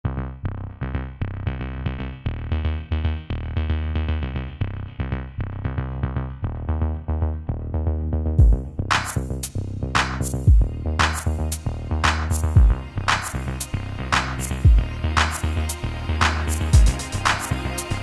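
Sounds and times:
deep bass line: 0.0s - 18.0s
electronic beat: 8.4s - 18.0s.

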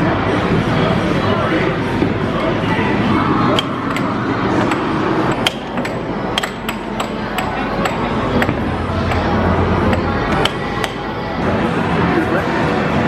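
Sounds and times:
air hockey puck clacking: 3.5s - 11.1s.

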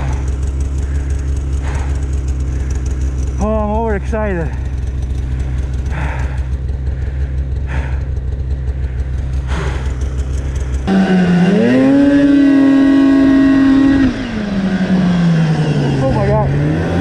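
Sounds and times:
snowmobile engine revving: 0.0s - 17.0s.

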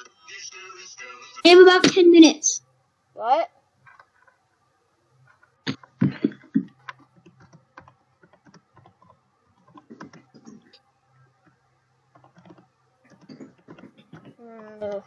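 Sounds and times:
keyboard typing: 5.2s - 15.0s.

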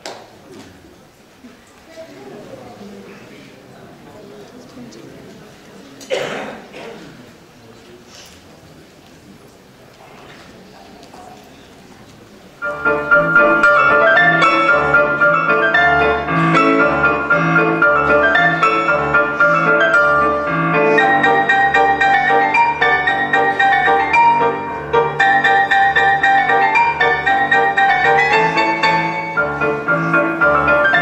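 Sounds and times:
piano music: 12.6s - 31.0s.

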